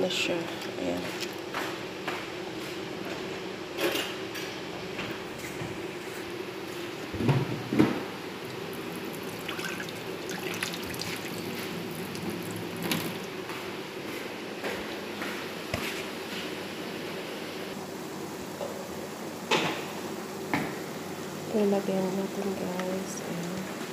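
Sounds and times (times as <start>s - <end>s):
water dripping and sloshing: 8.4s - 13.4s.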